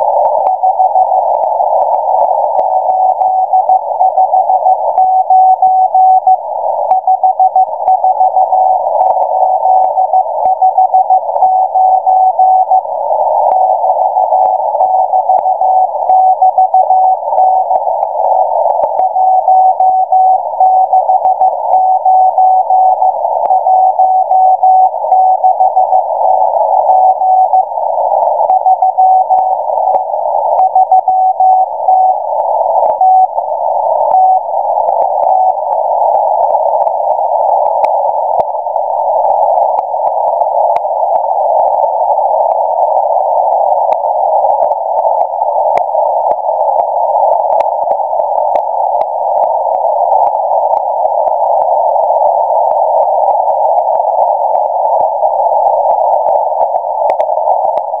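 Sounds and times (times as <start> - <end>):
radio static hiss with crackles: 0.0 - 58.0
morse code beeps: 2.2 - 35.7.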